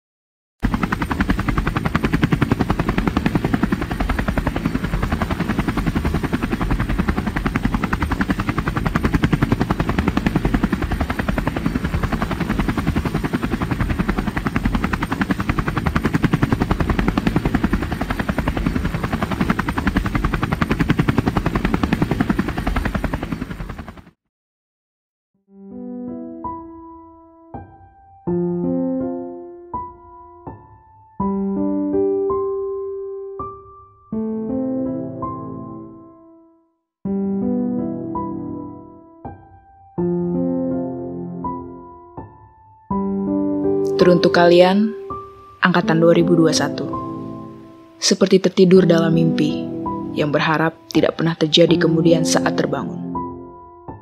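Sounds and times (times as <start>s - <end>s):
helicopter rotor chopping: 0.6s - 24.2s.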